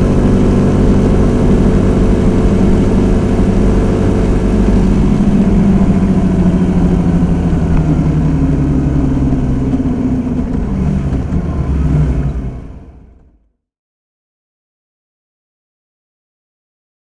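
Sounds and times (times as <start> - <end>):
motorcycle engine running: 0.0 - 13.5.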